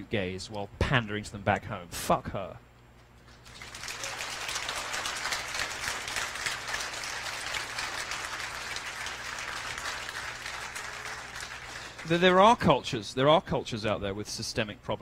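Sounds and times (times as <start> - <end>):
audience applauding: 3.4 - 12.2.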